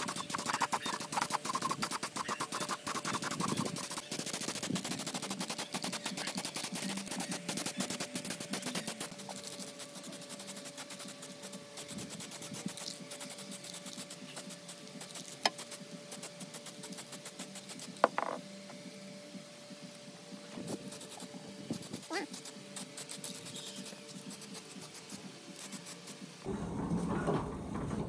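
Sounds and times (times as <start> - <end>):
spray can ball rattling: 0.0 - 18.4.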